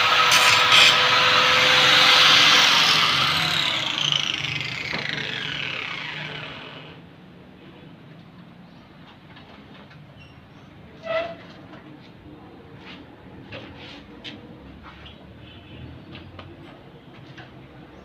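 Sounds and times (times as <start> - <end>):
angle grinder grinding metal: 0.0 - 7.0
grinder spinning down whine: 0.0 - 7.0.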